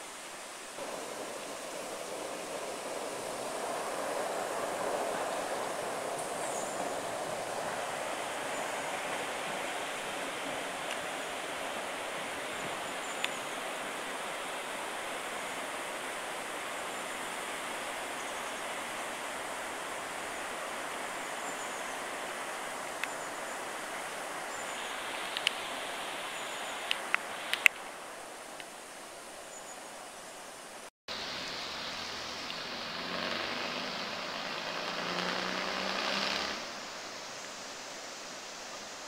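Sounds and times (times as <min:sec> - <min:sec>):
river water rushing: 0:00.0 - 0:39.0.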